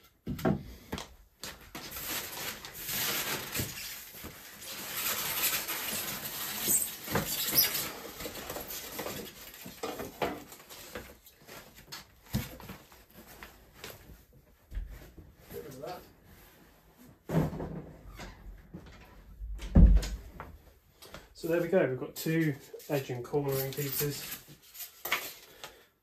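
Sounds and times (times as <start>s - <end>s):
cardboard rustling and scraping: 1.5s - 17.7s.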